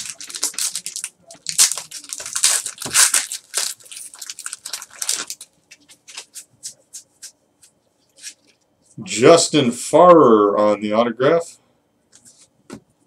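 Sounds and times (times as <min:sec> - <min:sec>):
foil wrapper crinkling: 0:00.0 - 0:06.3.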